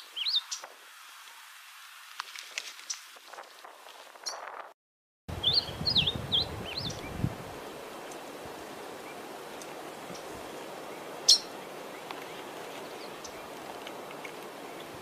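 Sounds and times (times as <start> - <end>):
steady background hiss: 0.0 - 3.7, 5.3 - 15.0
songbird whistling: 5.4 - 7.1.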